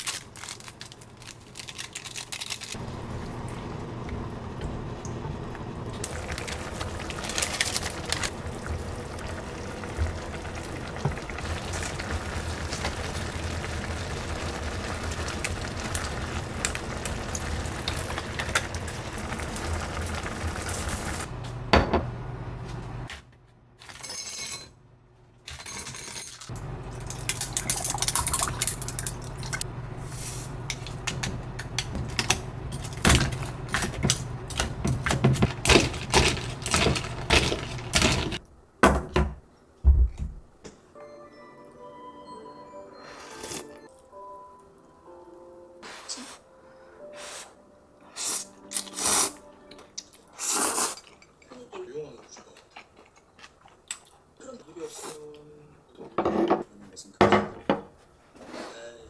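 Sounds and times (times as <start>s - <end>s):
broth boiling in a pan: 2.8s - 21.3s.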